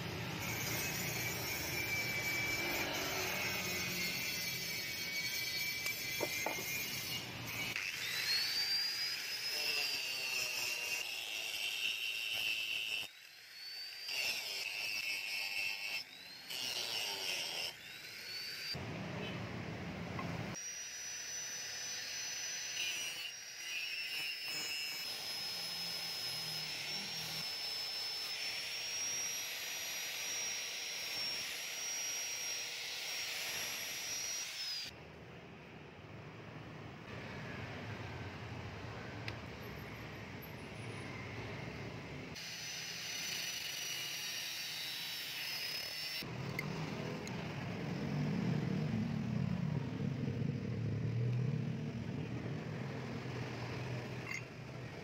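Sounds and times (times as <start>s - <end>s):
angle grinder on metal: 0.0s - 18.8s, 20.5s - 35.0s, 42.3s - 50.4s, 53.0s - 55.0s.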